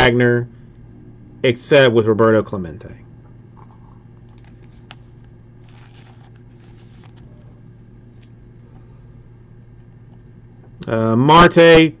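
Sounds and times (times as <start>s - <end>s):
steady low hum: 0.0s - 12.0s
card sliding into plastic sleeve: 4.3s - 7.4s.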